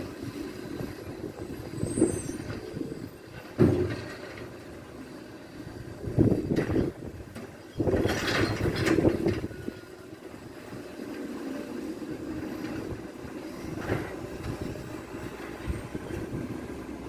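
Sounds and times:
truck engine running: 0.0 - 17.0
recycling clattering into truck: 3.4 - 4.8, 6.4 - 9.8.

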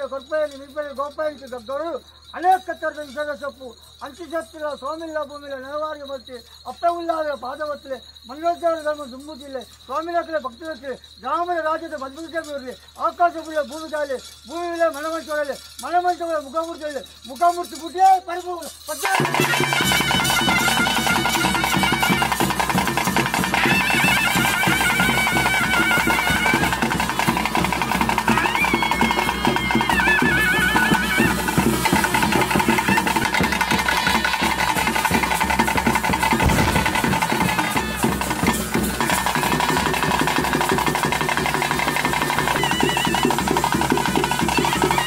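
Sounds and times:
continuous drumming: 8.3 - 45.0
reed pipe melody: 36.3 - 39.2.

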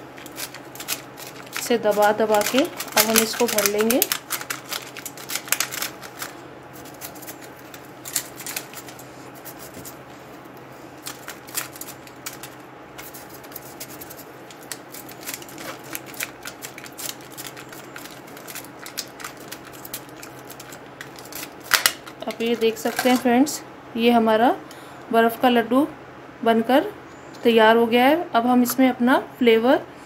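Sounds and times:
crushed ice crunching: 0.1 - 9.7.

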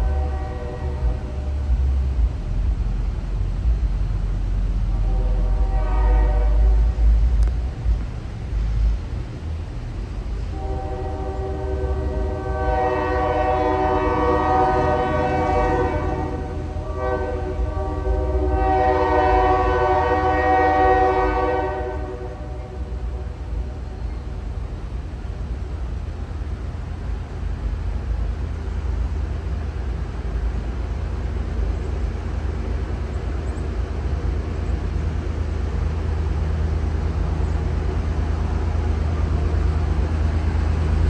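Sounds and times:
locomotive air horn blasts: 0.0 - 1.9, 4.8 - 7.2, 10.5 - 23.8
low rumble of moving train: 0.0 - 41.0.

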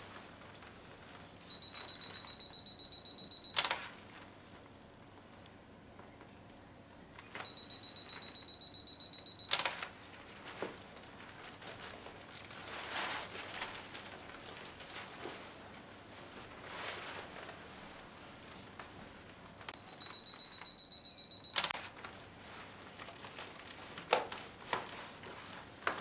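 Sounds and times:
plastic rain cape rustling: 0.0 - 2.3, 9.9 - 20.6, 21.8 - 26.0
camera self-timer beeping: 1.5 - 3.8, 7.4 - 9.8, 19.8 - 21.9
camera shutter click: 9.5 - 9.9.

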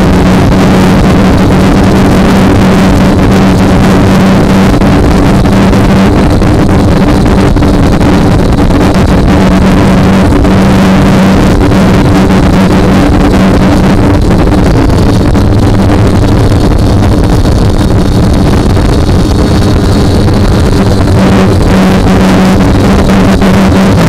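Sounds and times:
drone propellers buzzing: 0.0 - 24.0
wind rush on microphone: 0.0 - 24.0.

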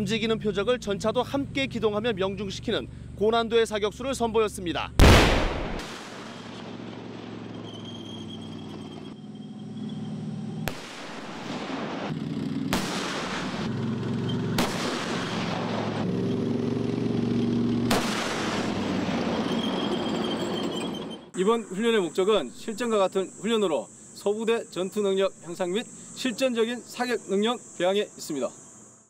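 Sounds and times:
tank engine droning: 0.0 - 5.0, 5.6 - 22.8
tank gun firing: 5.0 - 7.8, 10.6 - 13.8, 14.5 - 16.1, 17.8 - 20.0.

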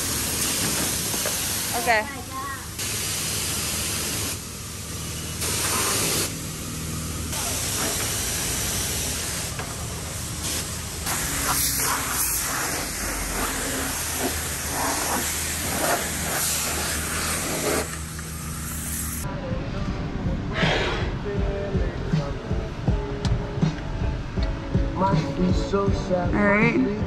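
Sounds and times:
water spraying with hiss: 0.0 - 4.6, 5.4 - 6.4, 7.3 - 19.2.

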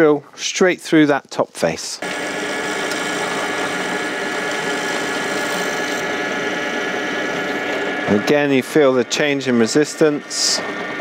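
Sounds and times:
pillar drill drilling wood: 2.0 - 8.3.

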